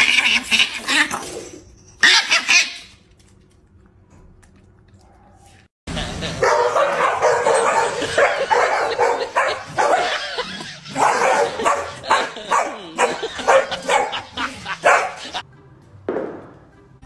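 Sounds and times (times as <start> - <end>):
dogs barking and yipping: 0.0 - 3.0, 6.3 - 15.4.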